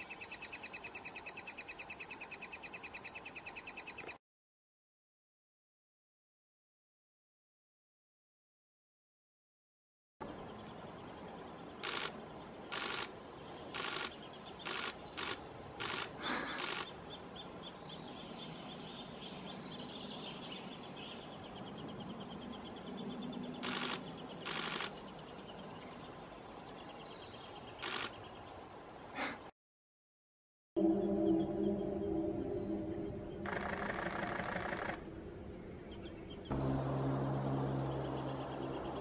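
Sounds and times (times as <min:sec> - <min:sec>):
nestlings begging chatter: 0:11.6 - 0:17.8, 0:20.5 - 0:25.5.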